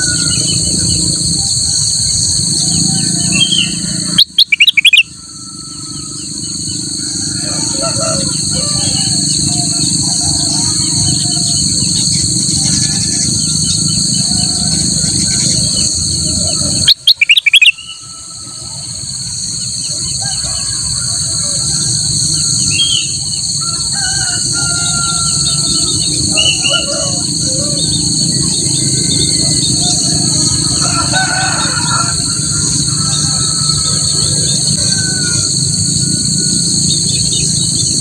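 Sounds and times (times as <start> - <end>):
bulbul singing: 0.0 - 20.5, 21.7 - 38.0
high insect drone: 0.0 - 38.0.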